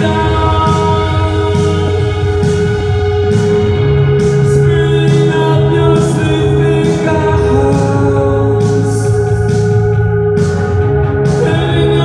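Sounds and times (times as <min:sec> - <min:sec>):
man singing: 0:00.0 - 0:02.6, 0:04.3 - 0:09.6, 0:11.3 - 0:12.0
live band music: 0:00.0 - 0:12.0.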